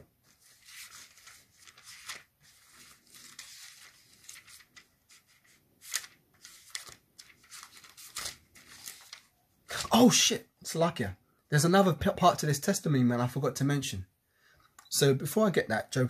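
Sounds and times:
book pages rustling: 0.0s - 10.0s
page turns: 0.0s - 10.2s.

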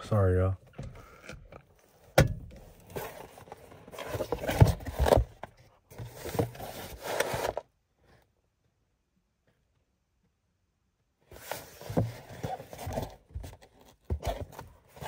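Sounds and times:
cardboard scraping and rustling: 2.6s - 7.7s, 11.3s - 15.0s.

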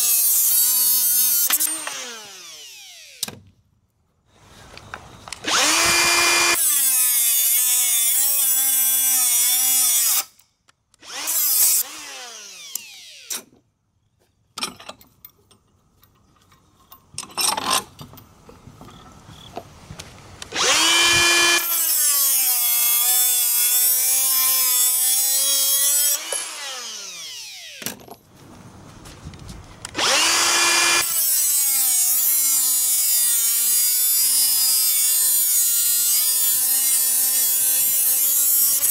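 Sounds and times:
die grinder cutting metal: 0.0s - 3.4s, 5.4s - 10.4s, 11.0s - 13.5s, 20.5s - 28.0s, 29.9s - 38.9s
grinder motor winding down: 1.4s - 3.2s, 5.4s - 6.9s, 11.0s - 13.3s, 20.5s - 27.8s, 29.9s - 38.9s.

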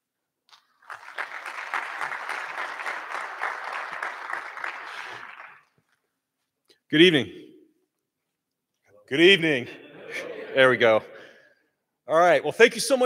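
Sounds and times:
audience applauding: 0.5s - 6.0s.

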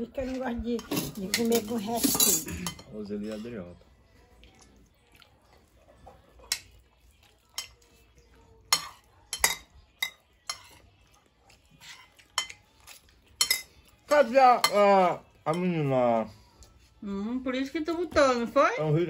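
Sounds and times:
cutlery clinking against plates: 0.2s - 3.6s, 6.0s - 15.8s.

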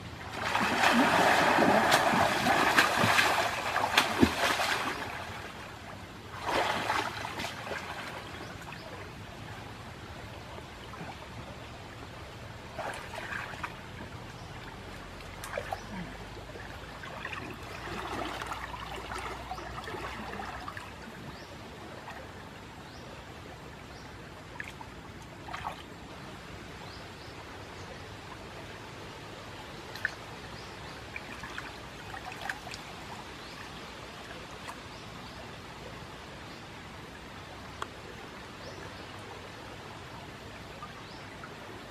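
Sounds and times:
river water running: 0.0s - 41.9s
person swimming and splashing: 0.3s - 5.4s.

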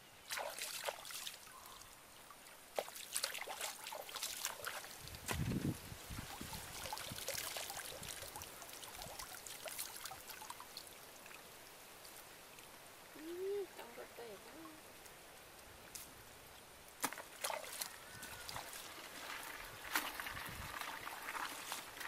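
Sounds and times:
muddy water splashing: 0.2s - 11.4s, 16.5s - 22.0s
water dripping and trickling: 0.2s - 22.0s
water sloshing: 0.3s - 11.4s, 17.0s - 22.0s.

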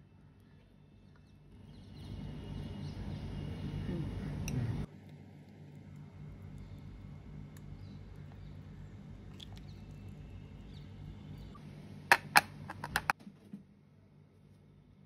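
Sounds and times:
low steady hum: 0.0s - 13.1s
metal spoon scraping batter: 12.1s - 13.1s
spoon knocking bowl and tin: 12.1s - 13.1s.

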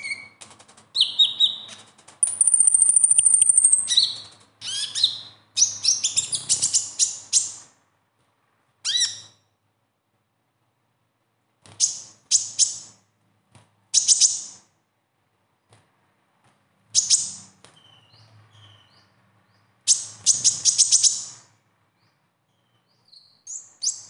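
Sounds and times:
sunbird singing: 1.0s - 7.6s.

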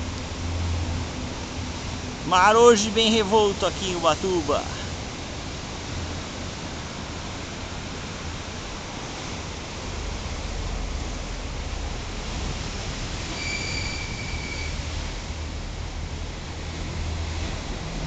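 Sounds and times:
sea surf breaking on shore: 0.0s - 18.0s
thin high whistle: 13.3s - 14.8s.

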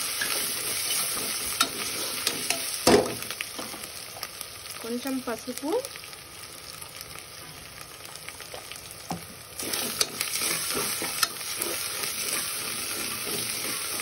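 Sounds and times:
onions sizzling in hot oil: 0.0s - 14.0s
metal spoon scraping pot: 9.6s - 14.0s.

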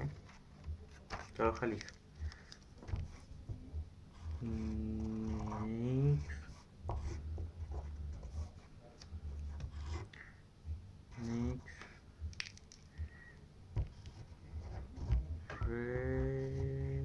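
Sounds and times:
pencil scratching on paper: 4.2s - 8.7s, 9.5s - 10.1s
person humming: 4.3s - 6.4s, 11.1s - 11.8s, 15.4s - 17.0s.

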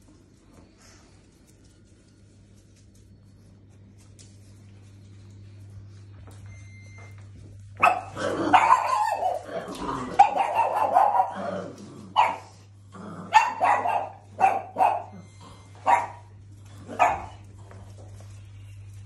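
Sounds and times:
dog barking: 7.8s - 11.5s, 12.2s - 12.6s, 13.3s - 16.3s, 16.9s - 17.4s.

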